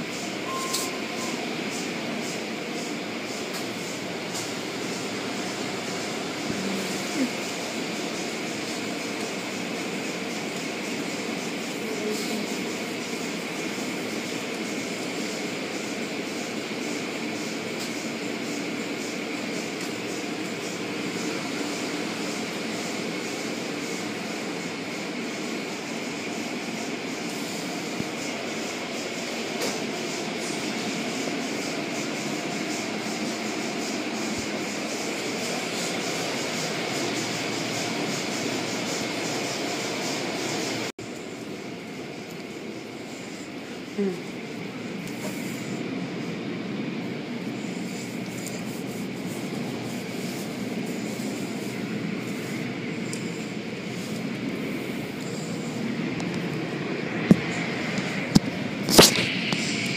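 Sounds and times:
car wash machinery: 0.0s - 59.9s.

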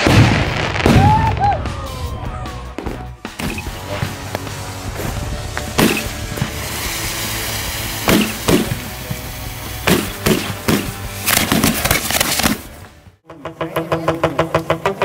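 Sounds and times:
fireworks bangs: 0.0s - 2.3s, 3.6s - 12.7s
background music: 0.3s - 15.0s
rhythmic music: 13.2s - 15.0s.

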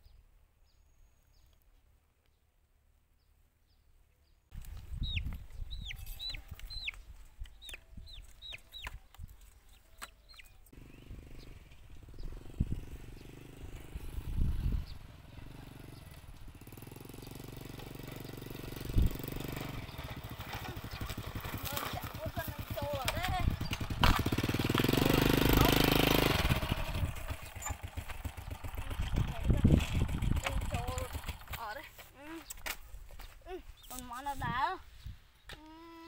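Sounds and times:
chick peeping: 5.0s - 9.1s
small motorcycle engine running: 10.8s - 32.0s.

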